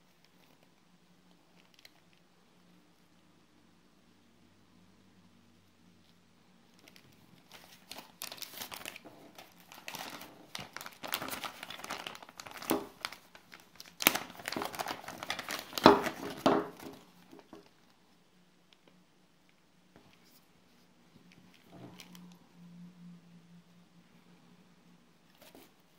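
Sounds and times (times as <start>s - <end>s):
plastic bag crinkling: 6.8s - 17.9s.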